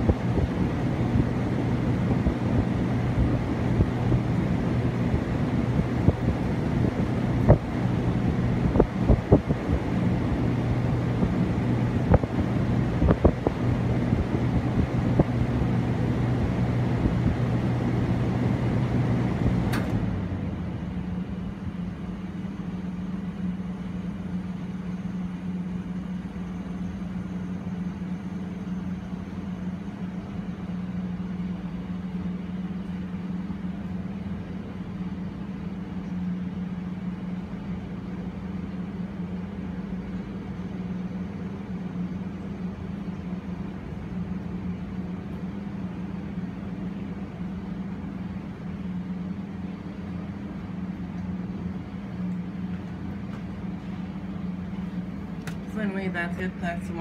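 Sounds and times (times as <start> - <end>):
air conditioner hum and rushing air: 0.0 - 57.0
air conditioner switch click: 19.5 - 20.1, 55.4 - 55.7
quiet steady hum: 20.3 - 57.0.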